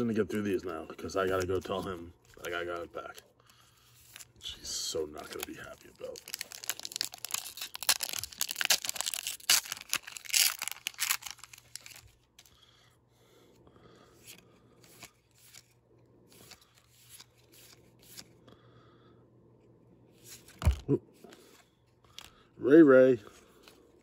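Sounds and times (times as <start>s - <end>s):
foil wrapper tearing and crinkling: 5.2s - 12.3s.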